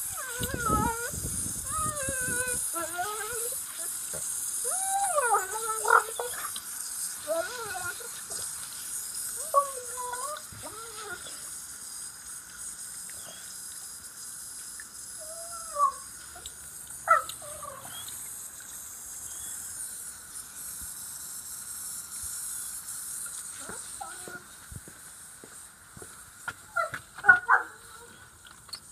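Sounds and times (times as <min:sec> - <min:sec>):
garden hose water spraying: 0:00.0 - 0:28.9
dog yelping: 0:26.8 - 0:28.1.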